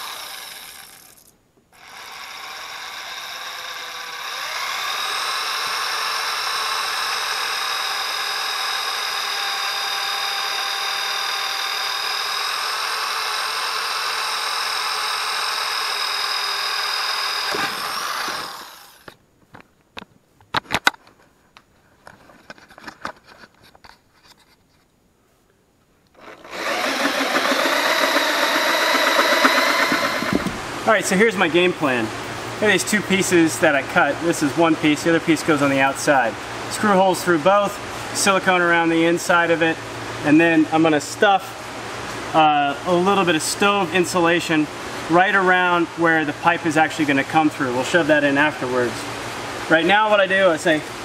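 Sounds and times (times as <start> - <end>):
electric drill boring metal: 0.0 - 19.1, 26.2 - 30.5
steady machine sound: 0.0 - 19.1, 26.2 - 30.7.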